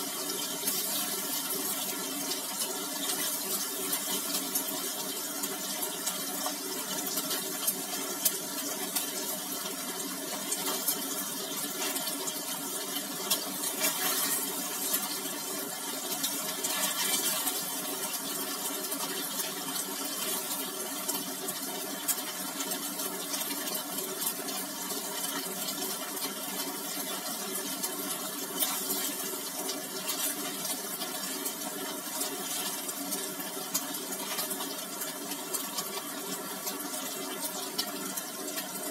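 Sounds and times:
tofu sizzling in hot oil: 0.0 - 38.9.

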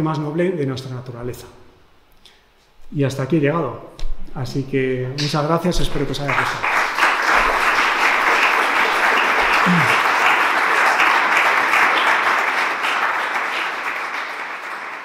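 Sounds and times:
audience applauding: 6.2 - 15.0.

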